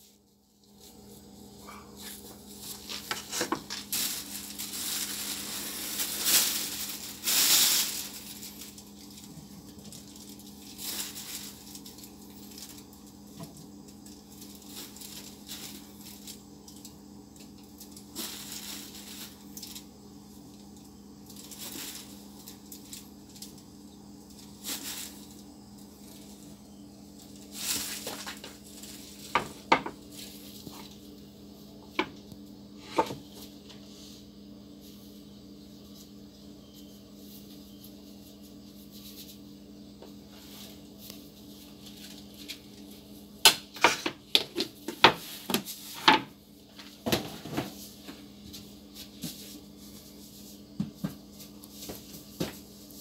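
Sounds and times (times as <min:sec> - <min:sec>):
plastic bag rustling: 0:00.0 - 0:17.0, 0:17.6 - 0:23.6, 0:24.2 - 0:31.2, 0:40.2 - 0:43.2
low electrical hum: 0:00.0 - 0:53.0.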